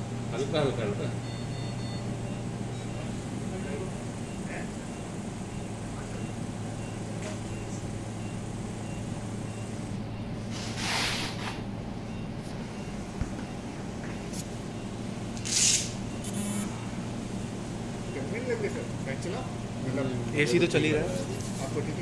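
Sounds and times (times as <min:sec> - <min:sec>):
low hum of equipment: 0:00.0 - 0:22.0
short hisses of air: 0:10.5 - 0:11.6, 0:15.4 - 0:16.7.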